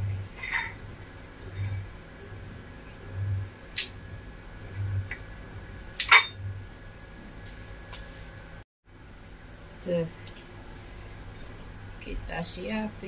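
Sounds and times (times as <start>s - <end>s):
pulsing low hum: 0.0s - 8.6s.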